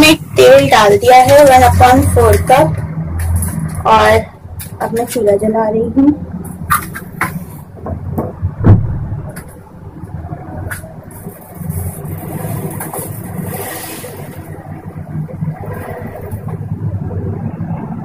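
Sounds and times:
low rumble: 7.8s - 18.0s.

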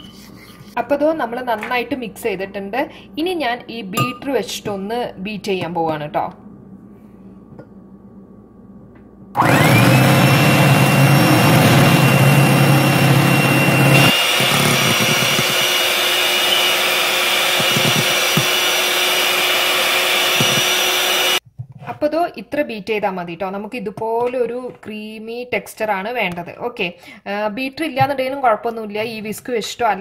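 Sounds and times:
electric hand mixer whirring: 9.4s - 21.4s.

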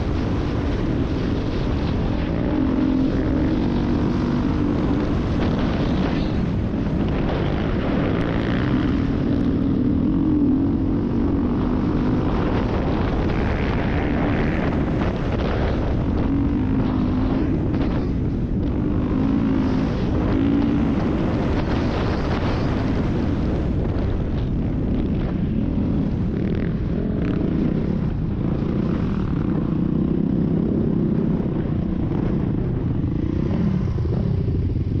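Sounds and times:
dirt bike engine: 0.0s - 35.0s
wind on microphone: 0.0s - 35.0s.

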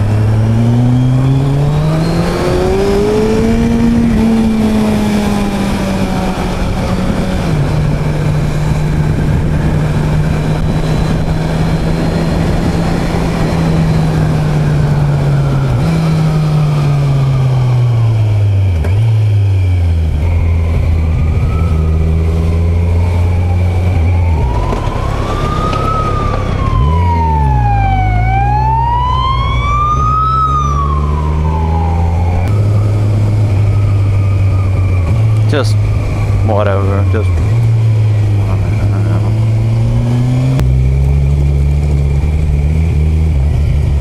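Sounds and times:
emergency siren wailing: 0.0s - 18.2s, 20.3s - 40.4s
motorcycle engine shifting gears: 0.0s - 44.0s
wind noise: 0.0s - 44.0s.

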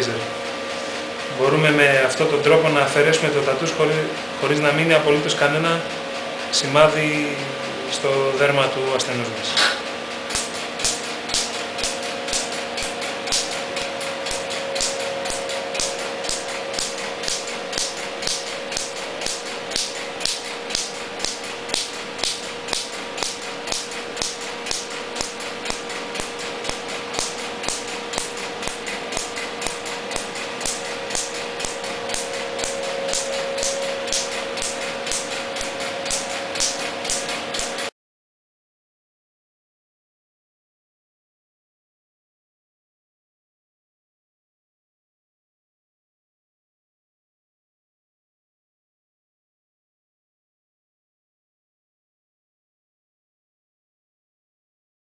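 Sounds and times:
steady hum: 0.0s - 37.9s
laser snapping clicks: 9.6s - 37.7s.

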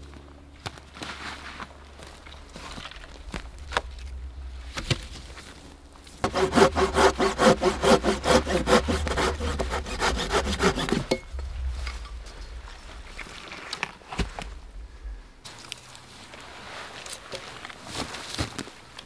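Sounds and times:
hand saw cutting wood: 6.2s - 11.2s.

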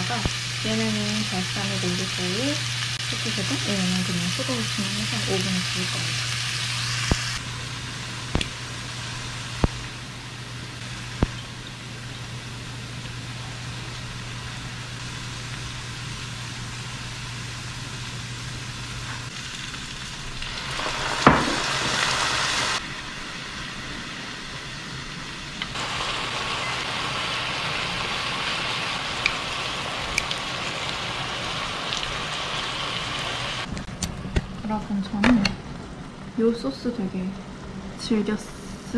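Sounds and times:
food sizzling in a frying pan: 0.0s - 33.7s.

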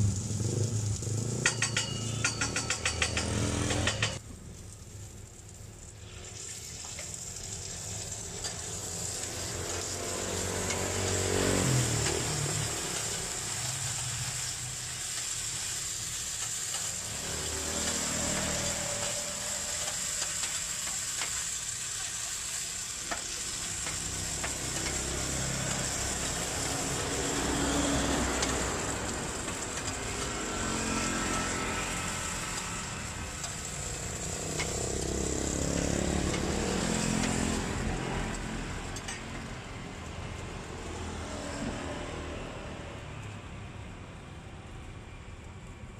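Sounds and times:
onions sizzling on griddle: 0.0s - 43.4s
metal spatula scraping steel: 1.4s - 4.2s.

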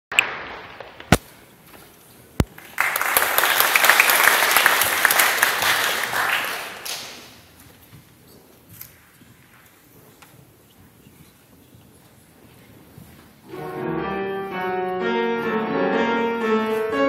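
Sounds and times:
audience applauding: 2.4s - 7.4s.

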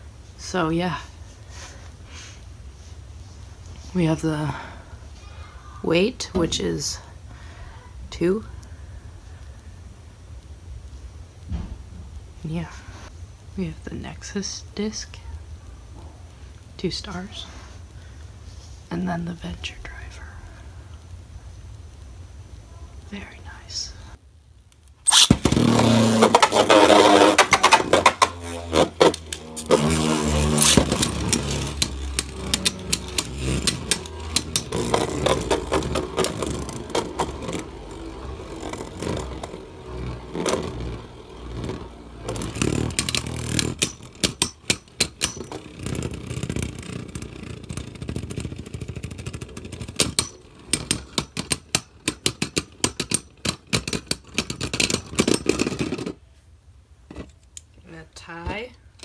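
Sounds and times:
spinning tops clashing clicks: 25.1s - 46.2s
spinning tops whirring and grinding: 25.1s - 56.2s.

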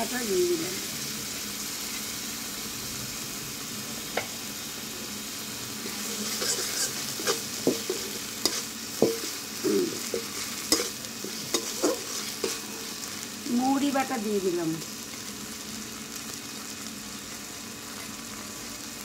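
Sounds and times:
pastes sizzling in hot oil: 0.0s - 19.0s
metal spatula scraping pan: 5.8s - 13.1s.

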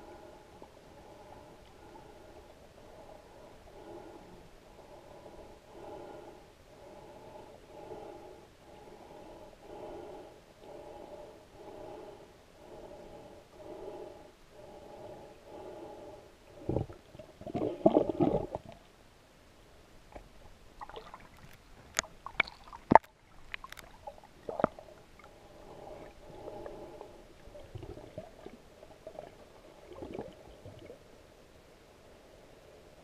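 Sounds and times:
underwater gurgling: 16.6s - 18.9s, 20.1s - 31.0s.

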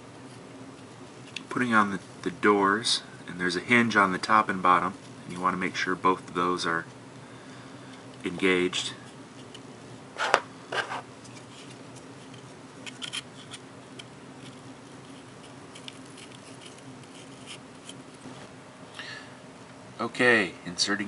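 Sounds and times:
plastic parts clicking and scraping: 10.2s - 18.0s.

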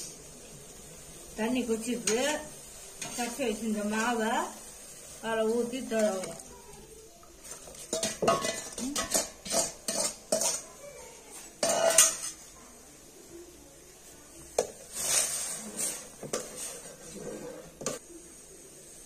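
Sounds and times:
ladle clinking against metal pot: 7.9s - 10.6s.

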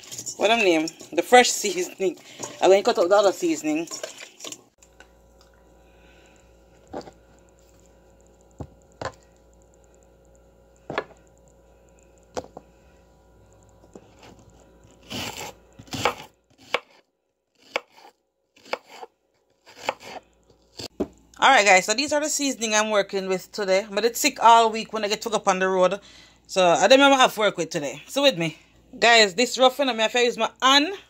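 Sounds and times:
knife chopping on cutting board: 17.7s - 19.1s.

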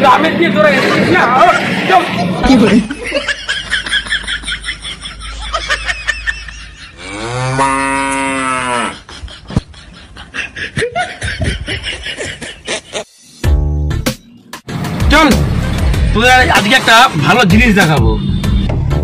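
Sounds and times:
cow mooing: 7.0s - 9.0s.

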